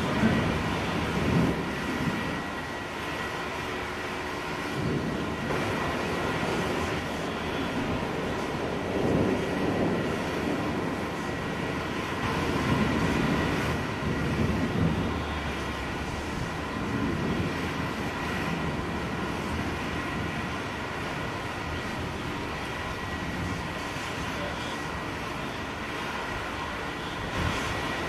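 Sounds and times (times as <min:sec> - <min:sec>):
distant thunder rumbling: 0:00.0 - 0:02.7, 0:04.6 - 0:24.1.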